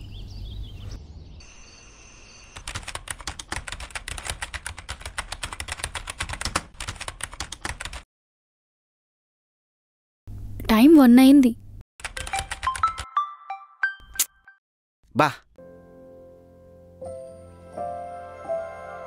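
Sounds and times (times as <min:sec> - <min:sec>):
rapid sharp clicks: 0:02.6 - 0:08.0.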